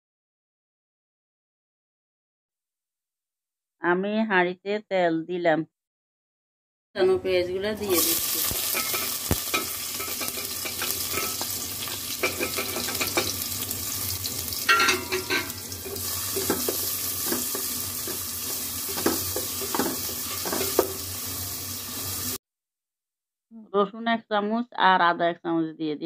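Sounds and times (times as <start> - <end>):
onions sizzling in hot oil: 7.8 - 22.4
spatula scraping and tapping pot: 8.5 - 13.5, 14.6 - 21.0.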